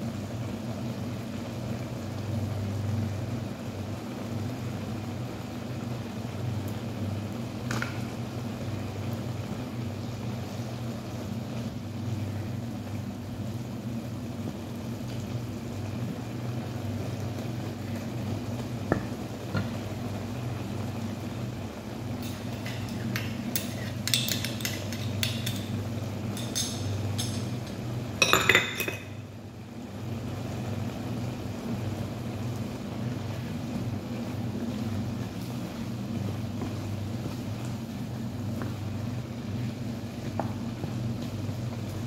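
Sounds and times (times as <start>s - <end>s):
steady low hum: 0.0s - 42.0s
utensils clinking against a wok: 22.1s - 29.2s.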